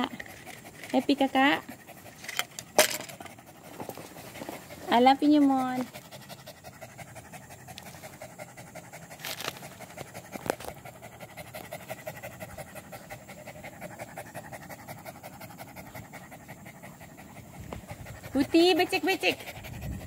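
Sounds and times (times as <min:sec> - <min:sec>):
dog panting: 0:00.0 - 0:20.0.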